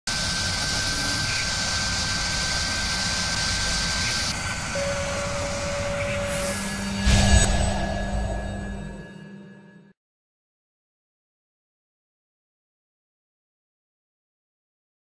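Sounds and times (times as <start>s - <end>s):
drill whirring with high whine: 0.1s - 9.0s
lower steady tone: 3.2s - 9.9s.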